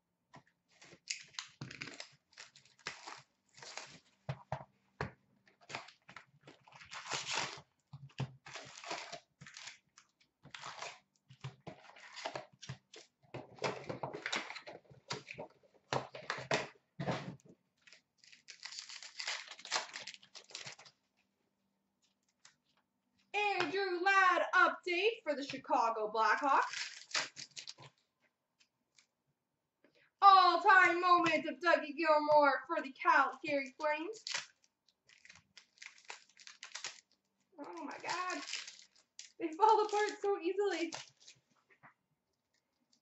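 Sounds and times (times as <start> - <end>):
cardboard and wrappers tearing: 0.7 - 4.2, 5.5 - 17.2, 17.8 - 21.0, 26.6 - 28.0, 34.2 - 41.5.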